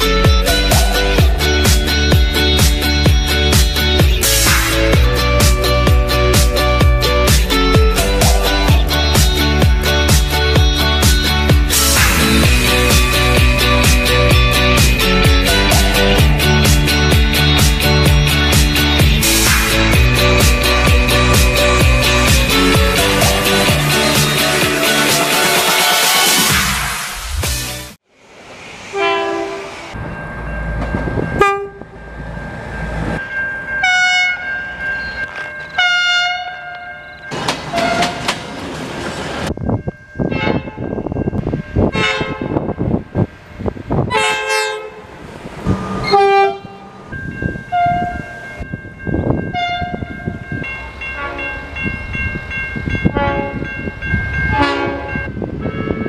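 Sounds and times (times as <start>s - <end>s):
train air horns: 28.9s - 29.9s, 41.9s - 42.6s, 44.1s - 45.0s, 46.0s - 46.9s, 53.1s - 53.6s, 54.5s - 55.1s
wheels clacking over rail joints: 36.7s - 39.6s.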